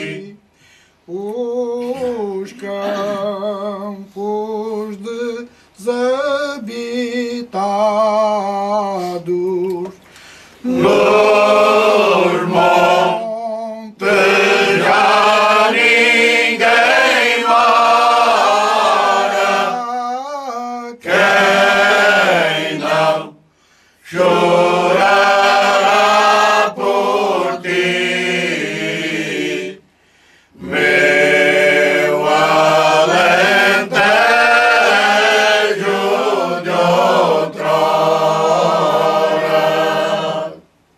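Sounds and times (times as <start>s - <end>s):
men's choir singing unaccompanied: 0.0s - 0.4s, 10.6s - 23.4s, 24.0s - 29.9s, 30.5s - 40.7s.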